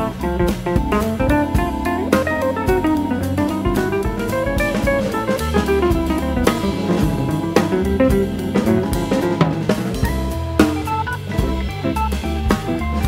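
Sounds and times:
instrumental music with drum beat: 0.0s - 13.0s.

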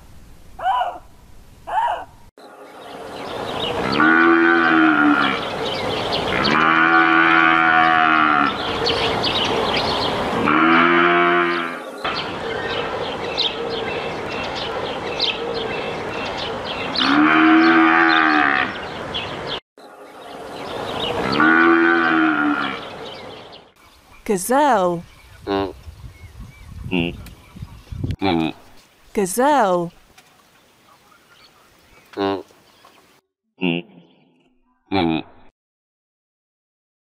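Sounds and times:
buffalo low moo-like calls: 3.8s - 5.5s, 6.3s - 8.6s, 10.4s - 11.8s, 17.0s - 18.8s, 21.2s - 22.9s.

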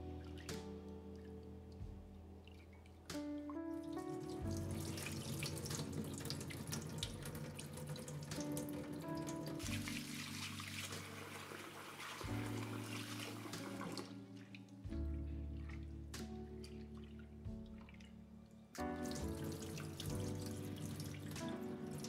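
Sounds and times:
background music: 0.0s - 22.0s
tap water pouring: 3.8s - 14.7s, 18.8s - 22.0s
water splashing in a glass bowl: 4.0s - 14.6s.

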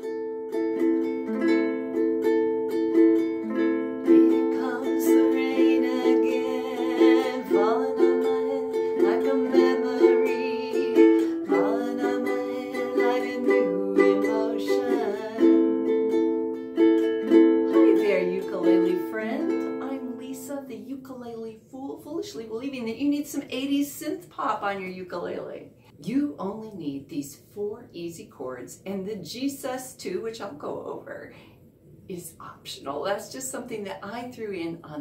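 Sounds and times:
ukulele picking: 0.0s - 20.5s
woman singing: 4.0s - 15.8s, 17.7s - 20.5s.

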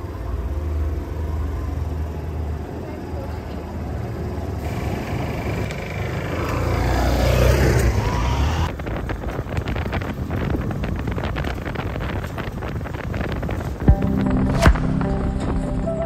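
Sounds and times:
motorcycle engine passing by: 4.6s - 8.7s
rattly buffeting inside sidecar: 8.7s - 14.4s.

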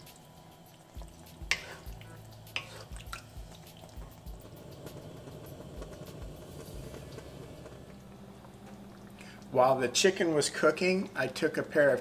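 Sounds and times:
chicken sizzling in hot oil: 0.0s - 12.0s
wooden spatula scraping pan: 1.5s - 1.9s, 2.6s - 2.9s.

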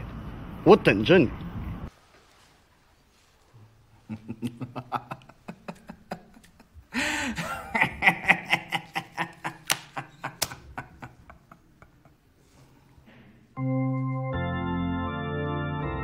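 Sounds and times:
man laughing: 4.0s - 12.4s.

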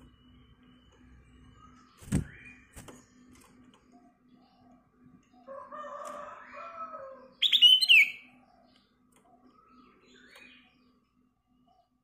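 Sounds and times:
bird singing: 0.0s - 12.0s.

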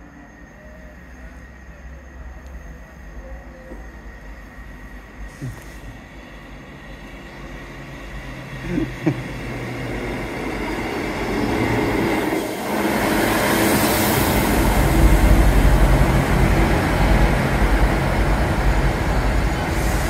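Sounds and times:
diesel train passing: 0.0s - 20.0s
hiss: 5.1s - 6.2s, 11.3s - 20.0s.

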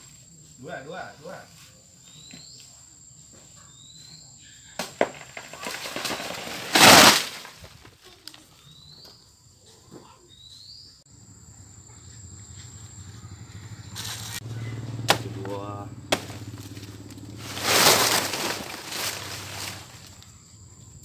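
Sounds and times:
bird chirping: 2.0s - 2.8s, 3.5s - 4.8s, 8.5s - 17.4s
machete chopping trunk: 4.8s - 7.5s, 15.0s - 16.9s
plant crashing through leaves: 4.8s - 8.0s, 15.0s - 15.5s, 16.1s - 20.2s.

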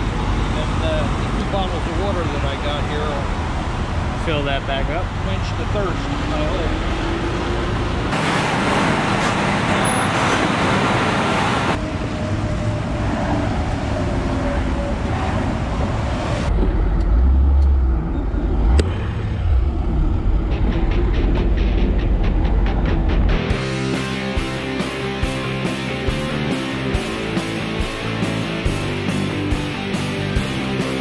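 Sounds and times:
road noise inside a car: 0.0s - 23.1s
highway traffic passing: 0.0s - 31.0s.

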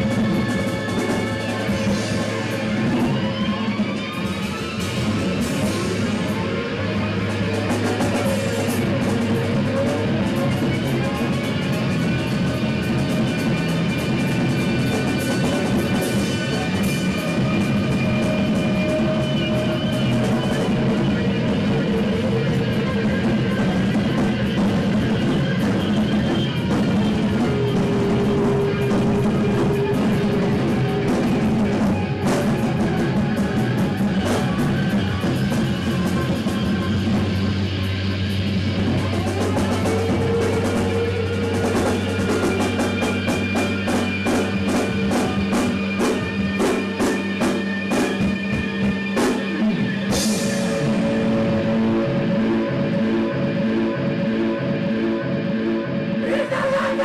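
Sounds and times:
live band playing amplified music: 0.0s - 57.0s
cymbal crash: 43.4s - 51.6s.

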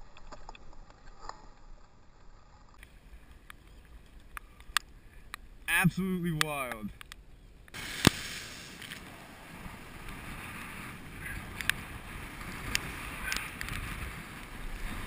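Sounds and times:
surf washing over rocks: 7.8s - 15.0s
wind on microphone: 7.8s - 15.0s.

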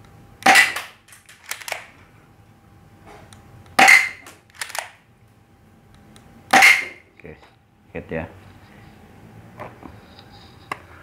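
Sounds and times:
toy pistol shot snap: 0.4s - 1.8s, 3.8s - 4.9s, 6.5s - 6.9s.

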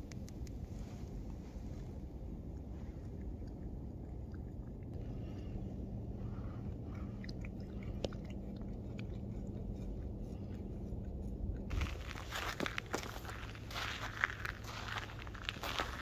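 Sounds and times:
cat licking paw: 0.3s - 16.0s
crackling rustle: 8.6s - 16.0s.

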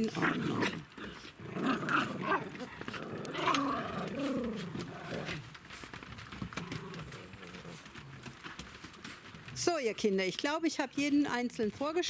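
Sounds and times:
dogs growling while scuffling: 0.0s - 9.6s.

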